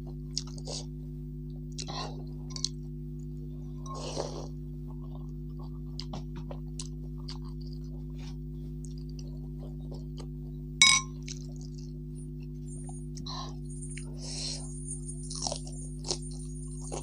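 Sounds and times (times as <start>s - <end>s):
steady low hum: 0.0s - 17.0s
metal spoon clinking on bowl: 10.8s - 11.2s.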